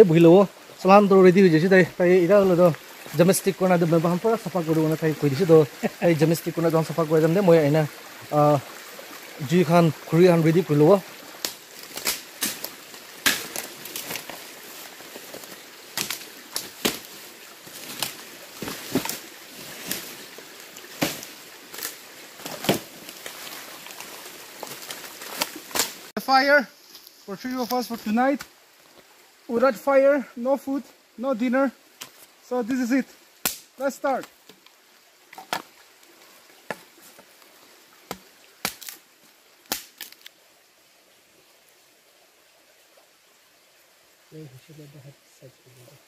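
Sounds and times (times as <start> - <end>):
bamboo being chopped: 11.4 - 14.4, 15.4 - 20.1, 20.9 - 23.6, 24.6 - 26.1, 33.4 - 34.6, 38.0 - 39.0, 39.7 - 40.2.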